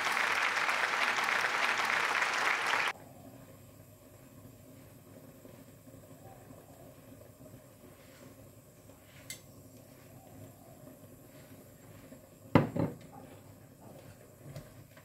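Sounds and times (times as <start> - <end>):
bottle knocking on counter: 12.6 - 13.0.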